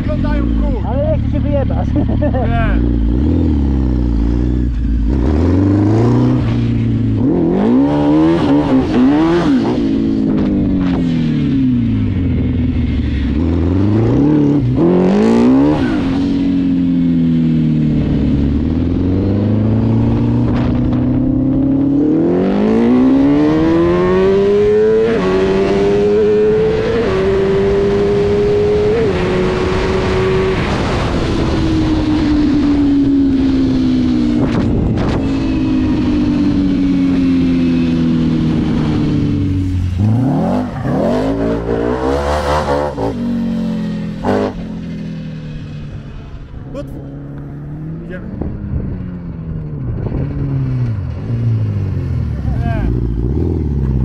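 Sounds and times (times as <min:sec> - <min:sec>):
quad engine revving: 0:00.0 - 0:11.0, 0:13.3 - 0:16.7, 0:33.4 - 0:45.0.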